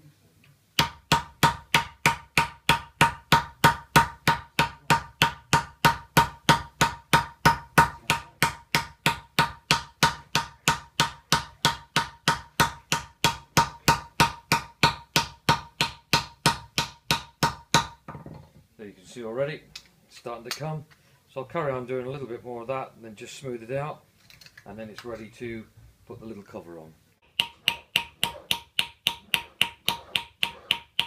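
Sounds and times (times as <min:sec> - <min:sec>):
hammer striking metal disc: 0:00.8 - 0:18.0, 0:27.2 - 0:31.0.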